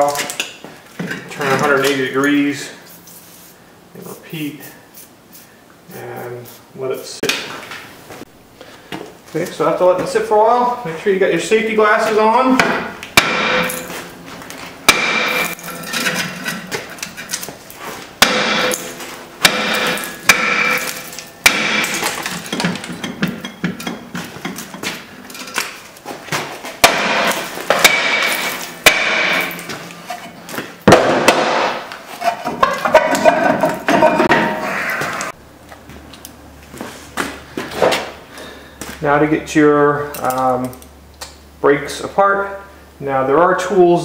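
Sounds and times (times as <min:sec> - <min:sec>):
hammer striking metal brake drum: 0:12.6 - 0:14.1, 0:14.9 - 0:16.5, 0:18.2 - 0:24.8, 0:26.8 - 0:30.2
metal drum ringing: 0:12.6 - 0:14.1, 0:14.8 - 0:16.6, 0:18.2 - 0:24.1, 0:26.8 - 0:30.4.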